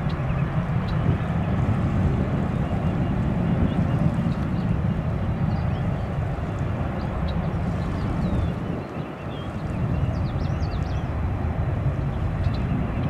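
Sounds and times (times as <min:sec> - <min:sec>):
airport ambience rumble: 0:00.0 - 0:13.0
wind on microphone: 0:00.0 - 0:13.0.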